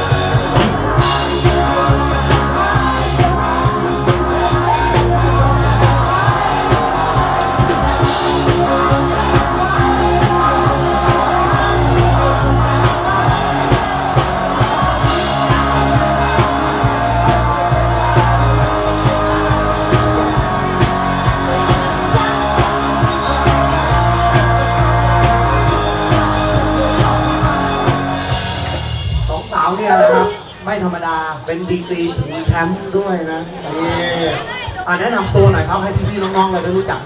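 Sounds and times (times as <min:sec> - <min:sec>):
person singing: 0:00.0 - 0:27.8, 0:29.9 - 0:30.6
steady drum beat: 0:00.0 - 0:28.9
guitar: 0:00.0 - 0:29.1, 0:29.8 - 0:30.7
rock music: 0:00.0 - 0:30.8.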